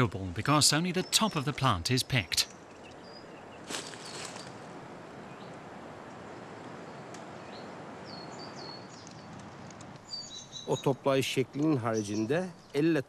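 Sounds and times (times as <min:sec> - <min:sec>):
brief rustle: 0:03.6 - 0:04.6
high bird chirps: 0:10.0 - 0:11.0.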